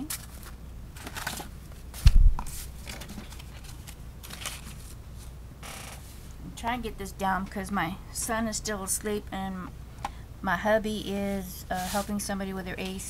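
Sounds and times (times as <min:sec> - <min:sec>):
paper and plastic sleeve rustling: 0:00.0 - 0:05.4, 0:11.8 - 0:12.3.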